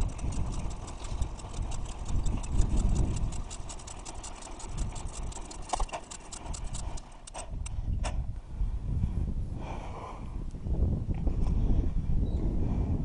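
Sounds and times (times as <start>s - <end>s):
bicycle clicks and rattles: 0.0s - 8.2s
wind buffeting microphone: 0.0s - 13.0s.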